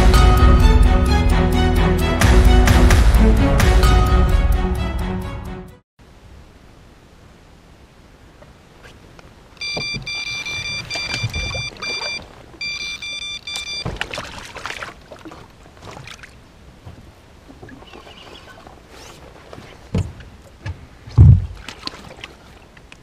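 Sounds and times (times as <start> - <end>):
bite alarm high beeps: 9.6 - 13.9
handling knocks and rustling: 16.8 - 23.0.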